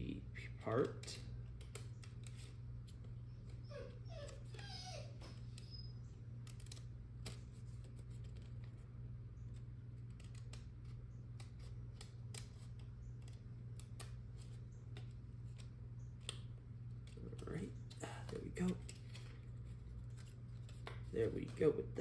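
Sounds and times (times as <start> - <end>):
steady low hum: 0.0 - 22.0
scissors snipping paper: 6.4 - 8.8, 9.4 - 21.7.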